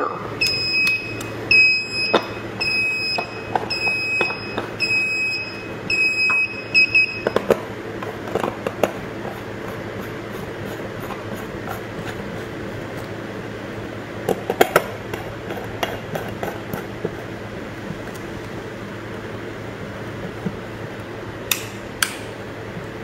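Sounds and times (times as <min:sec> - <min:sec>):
short high beeps: 0:00.4 - 0:07.4.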